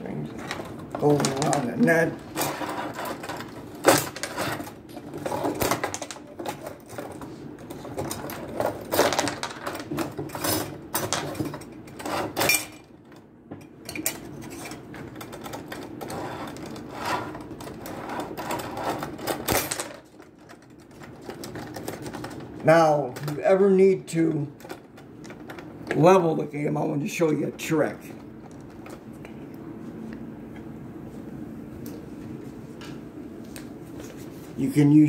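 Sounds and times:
table hockey rods sliding: 0.4s - 9.7s, 11.9s - 12.7s, 14.2s - 22.4s.

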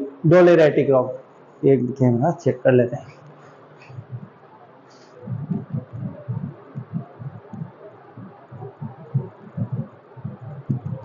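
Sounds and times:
microphone handling thumps: 3.8s - 4.4s, 5.2s - 11.0s.

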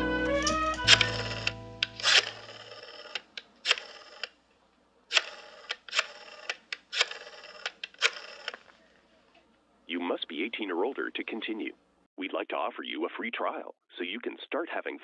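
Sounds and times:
rotary telephone dial clicks: 0.9s - 4.4s, 5.1s - 8.8s.

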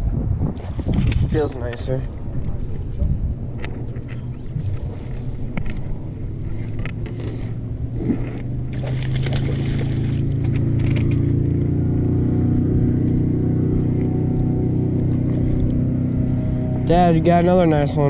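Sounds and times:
microphone handling rustle: 0.4s - 11.2s
boat engine hum: 0.6s - 18.0s.

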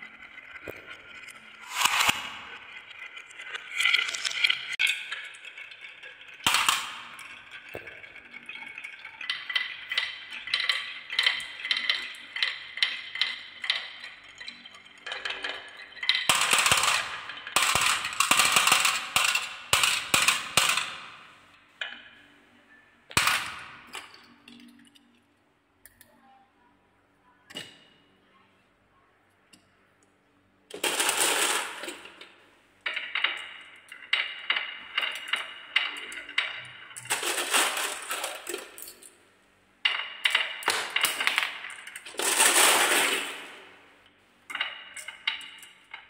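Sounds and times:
marbles rattling on wooden tracks: 0.0s - 21.4s, 30.7s - 38.9s, 39.8s - 43.8s.

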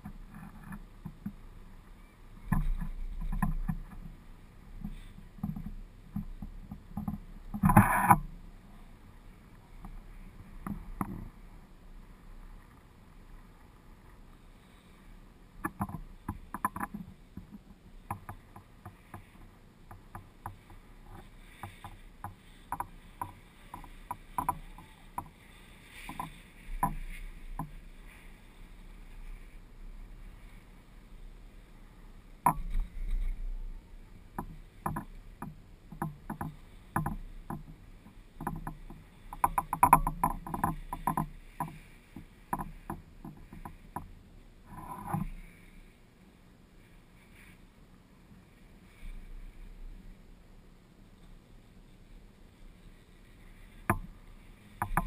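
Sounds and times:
chairlift chair creaking and knocking: 2.4s - 4.2s, 4.8s - 8.3s, 15.6s - 27.9s, 34.3s - 45.4s.

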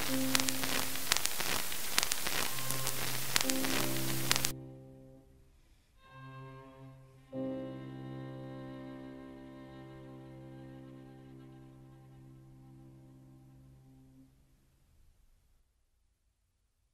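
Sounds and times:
crackling hiss with clicks: 0.0s - 4.6s
bowed strings music: 2.5s - 5.4s, 6.0s - 14.2s.

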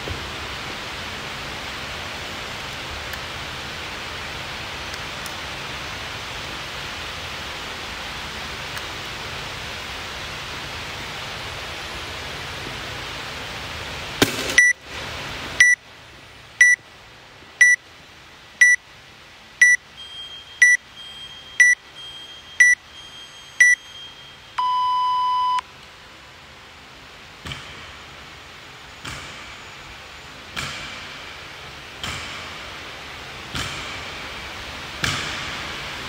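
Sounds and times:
longer lower beep: 15.6s - 15.8s, 16.6s - 16.8s, 17.6s - 17.8s, 18.6s - 18.8s, 19.6s - 25.7s
short high beeps: 16.6s - 16.8s, 19.6s - 25.6s.

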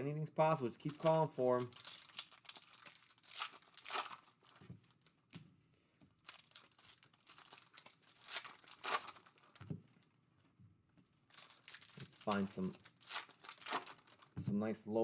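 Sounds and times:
foil wrapper tearing and crinkling: 0.8s - 5.0s, 6.2s - 9.6s, 11.3s - 14.4s.

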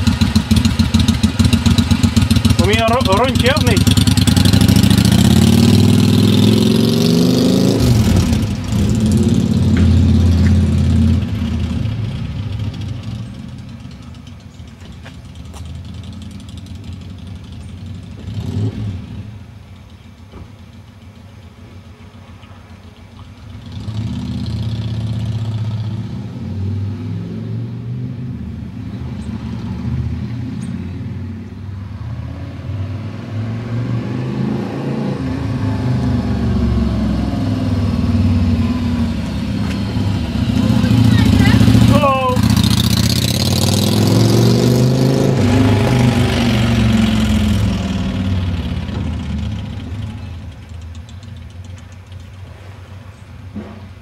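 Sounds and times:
motorcycle engine pulling away: 0.0s - 54.0s.

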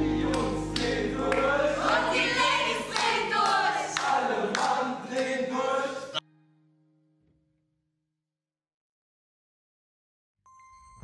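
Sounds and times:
music backing: 0.0s - 4.8s
choir singing: 0.0s - 6.2s.

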